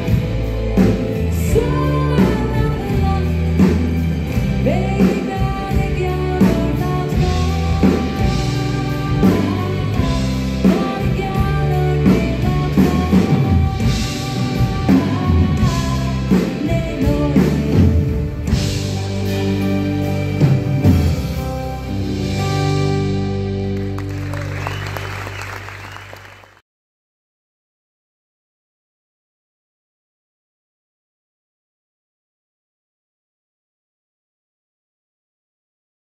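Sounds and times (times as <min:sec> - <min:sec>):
woman singing: 0:00.0 - 0:19.7
live pop band playing: 0:00.0 - 0:26.3.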